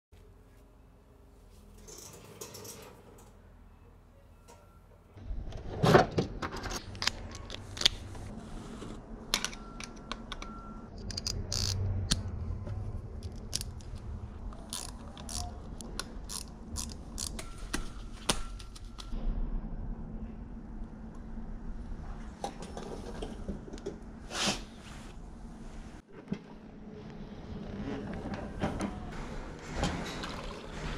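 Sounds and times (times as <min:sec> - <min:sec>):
metal tools clicking and clinking: 0:13.2 - 0:19.2.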